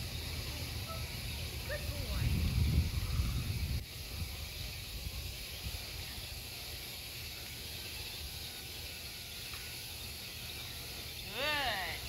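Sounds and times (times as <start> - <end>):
steady high hiss: 0.0 - 12.0
wind rumble on microphone: 1.5 - 6.2.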